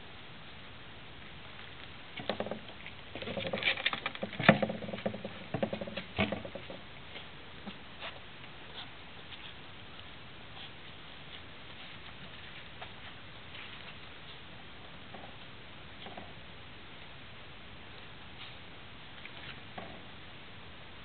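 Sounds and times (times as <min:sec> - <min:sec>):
dog snuffling: 0:07.1 - 0:14.6.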